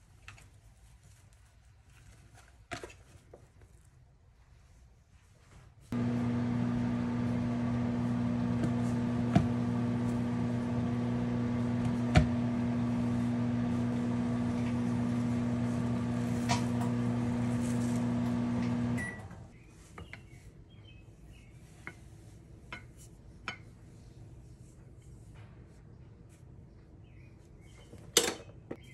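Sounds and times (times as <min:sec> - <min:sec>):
microwave oven humming: 0:06.0 - 0:19.5.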